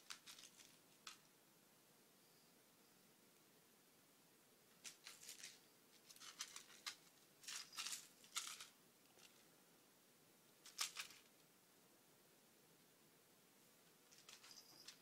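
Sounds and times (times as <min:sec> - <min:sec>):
faint scratchy rustling: 0:00.0 - 0:01.4, 0:04.6 - 0:09.6, 0:10.5 - 0:11.5, 0:13.6 - 0:15.0.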